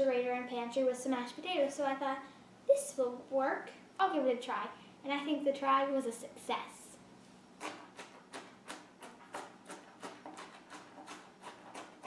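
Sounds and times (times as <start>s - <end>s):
knife chopping on cutting board: 7.6s - 12.0s.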